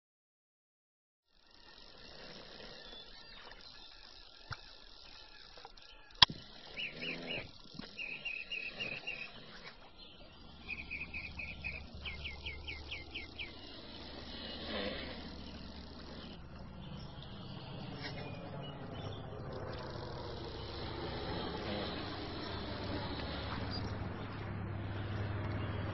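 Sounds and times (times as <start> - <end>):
small bird chirping: 1.4 - 25.9.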